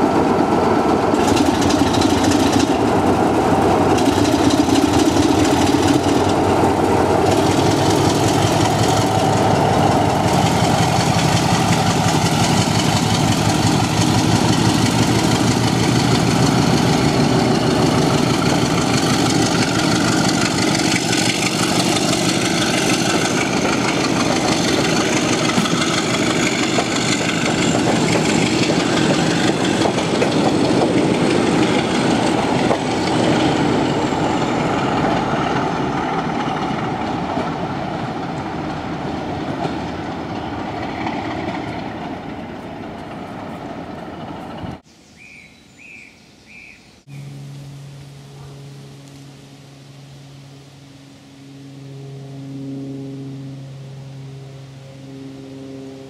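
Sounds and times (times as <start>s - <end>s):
diesel locomotive engine running: 0.0s - 44.8s, 47.0s - 56.0s
high whine: 47.1s - 56.0s.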